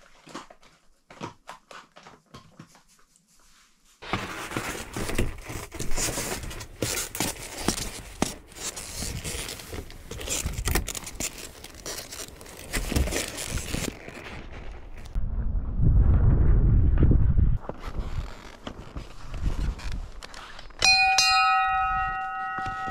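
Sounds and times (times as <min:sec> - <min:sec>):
crunching and scraping snow: 0:04.0 - 0:15.2, 0:16.8 - 0:21.0.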